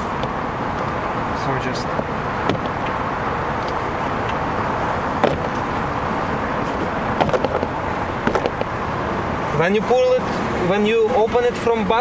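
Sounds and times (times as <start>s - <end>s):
steady background noise: 0.0s - 12.0s.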